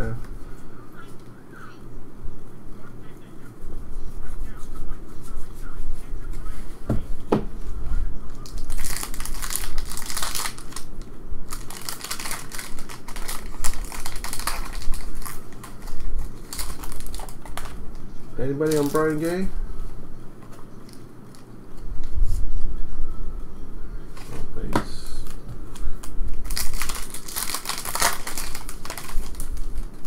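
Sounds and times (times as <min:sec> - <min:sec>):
plastic wrapping crinkling: 0:08.4 - 0:19.5, 0:26.0 - 0:30.0.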